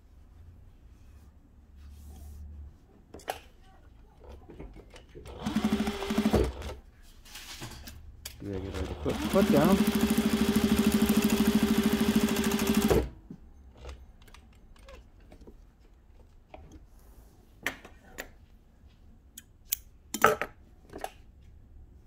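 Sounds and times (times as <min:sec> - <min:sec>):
sewing machine stitching: 0:05.2 - 0:06.8, 0:08.4 - 0:13.2.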